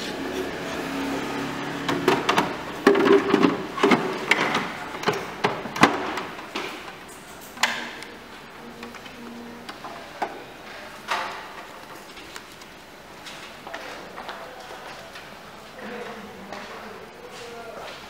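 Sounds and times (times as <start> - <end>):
plastic bin knocking and clattering: 1.9 - 6.9.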